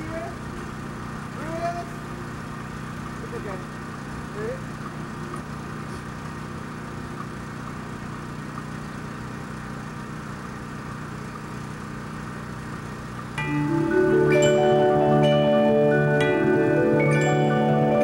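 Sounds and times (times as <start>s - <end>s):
engine idling: 0.0s - 18.0s
marimbas and mallet percussion: 13.4s - 18.0s.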